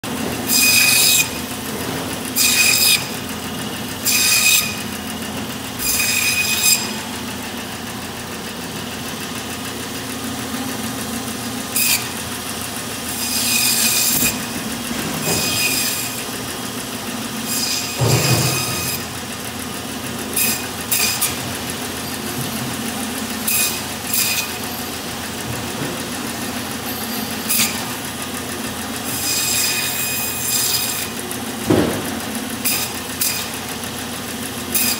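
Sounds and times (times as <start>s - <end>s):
band saw humming: 0.0s - 34.9s
saw blade rasping through bone: 0.5s - 1.4s, 2.4s - 3.2s, 4.0s - 4.8s, 5.8s - 7.0s, 13.1s - 14.6s, 15.2s - 16.3s, 27.5s - 27.9s, 29.1s - 31.2s, 32.6s - 33.6s.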